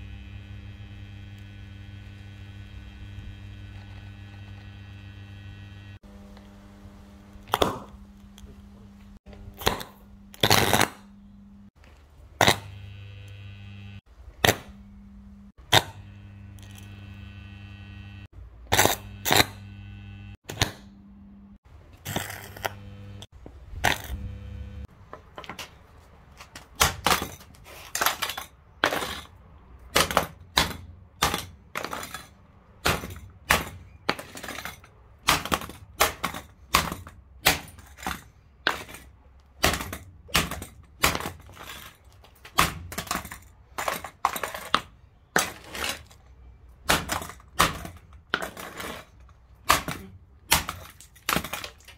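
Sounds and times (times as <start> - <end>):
jigsaw electric hum: 0.0 - 8.4, 12.4 - 24.9
plastic body breaking: 46.8 - 51.9.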